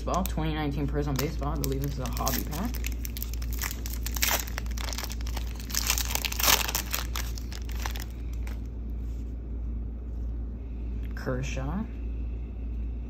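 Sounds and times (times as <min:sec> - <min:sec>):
card pack wrapper tearing: 0:01.1 - 0:08.6.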